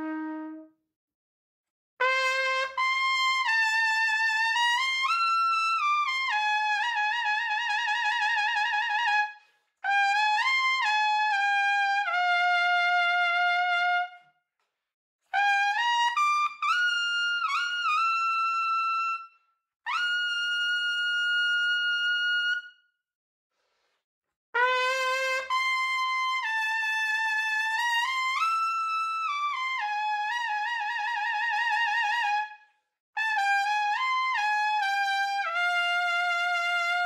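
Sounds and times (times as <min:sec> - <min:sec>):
solo trumpet playing: 0:00.0 - 0:00.8, 0:02.0 - 0:14.2, 0:24.6 - 0:32.4, 0:33.2 - 0:37.0.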